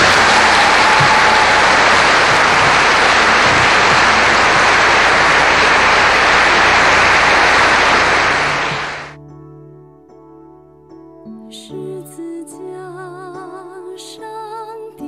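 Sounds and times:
congregation applauding: 0.0s - 9.2s.

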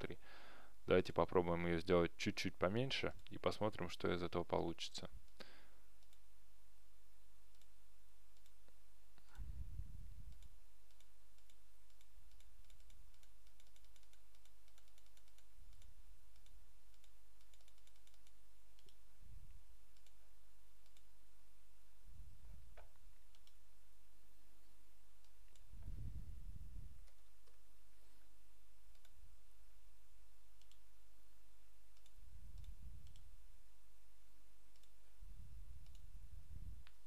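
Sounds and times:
steady low hum: 0.0s - 14.7s, 15.4s - 37.0s
computer mouse clicks: 6.0s - 6.2s, 7.5s - 9.4s, 10.3s - 19.0s, 19.9s - 20.2s, 20.8s - 21.1s, 22.7s - 23.6s, 27.0s - 27.6s, 28.9s - 29.2s, 30.6s - 30.9s, 31.9s - 33.3s, 34.7s - 35.0s, 35.8s - 36.1s.

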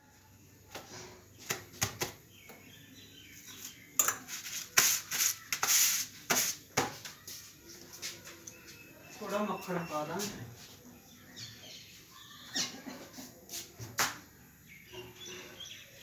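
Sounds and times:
dishes and utensils clinking: 4.0s - 4.4s.

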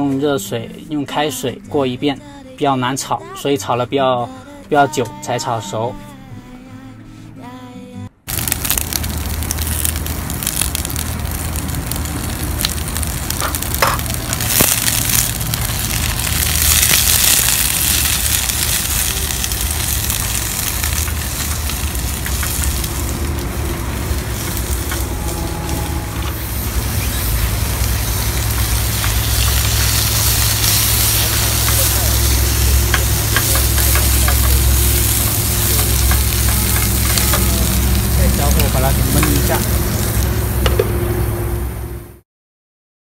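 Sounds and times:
green beans sizzling in a pan: 8.3s - 41.0s
low hum: 8.3s - 42.2s.

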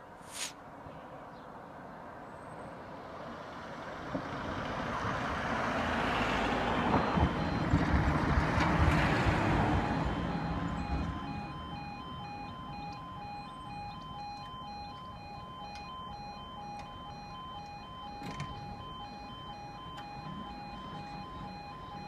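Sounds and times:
level crossing alarm: 6.7s - 7.8s, 8.8s - 22.0s.

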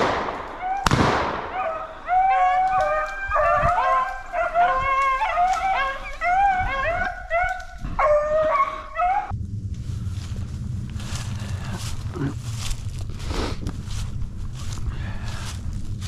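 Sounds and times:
beagles baying: 0.0s - 9.3s.

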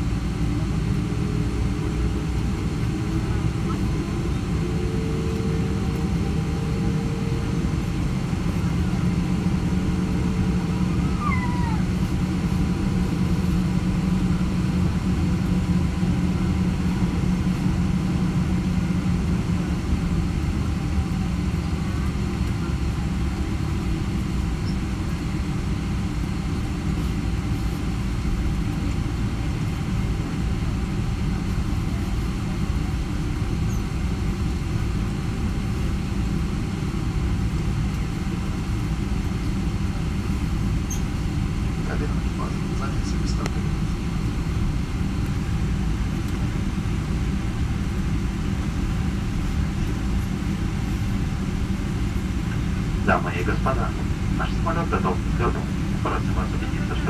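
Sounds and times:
jet engines rumbling in cabin: 0.0s - 57.0s
low hum: 0.0s - 57.0s.

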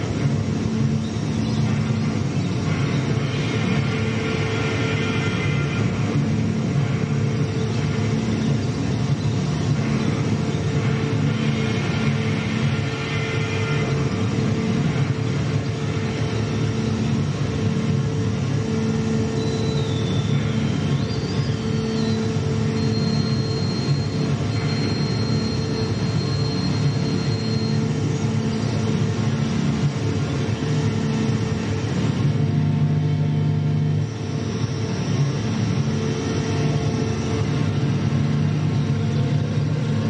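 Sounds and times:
electronic rumbling drone: 0.0s - 40.0s
low humming tones: 0.0s - 40.0s
high whistling tones: 19.4s - 28.0s.

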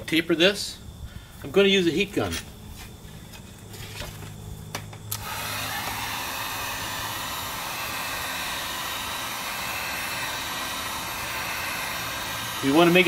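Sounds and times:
heat gun fan blowing air: 3.3s - 13.0s
heat gun switch clicks: 5.1s - 5.3s.

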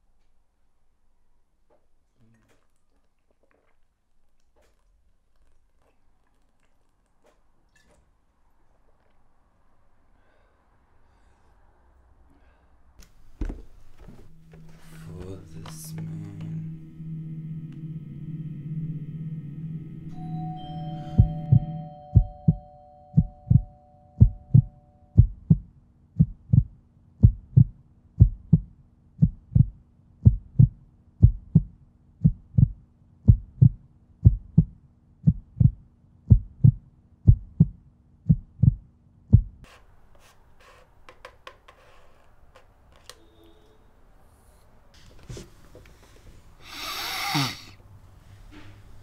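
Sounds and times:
low steady drone: 14.2s - 23.5s
heartbeat thumps: 21.1s - 39.7s.

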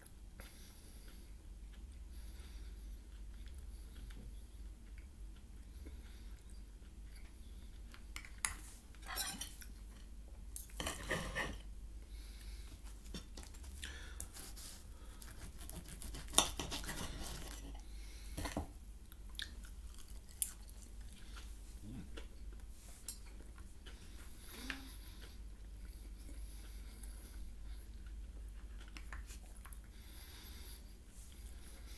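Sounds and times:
chewing food: 0.0s - 10.8s, 15.0s - 31.9s
fork clinking and scraping on plate: 9.0s - 9.6s.

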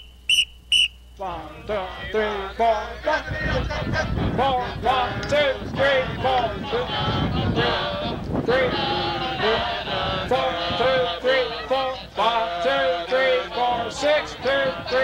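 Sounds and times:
group of voices singing detached notes: 1.5s - 15.0s.

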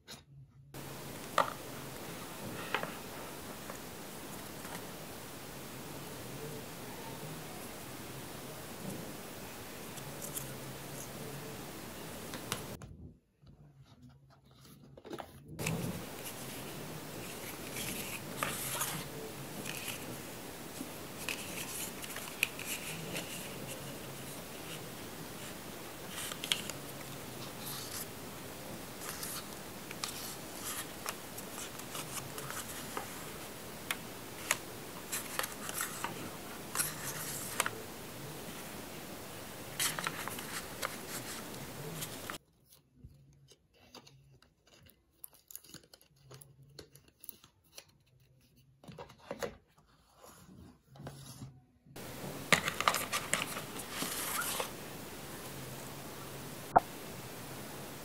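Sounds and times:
cardboard scraping and rubbing: 14.0s - 28.1s, 52.0s - 54.8s.

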